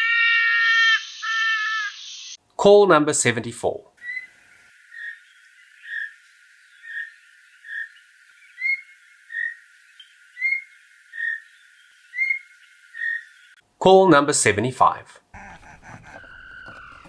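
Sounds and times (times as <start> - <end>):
wild animal calling: 0.0 - 2.0, 15.3 - 17.0.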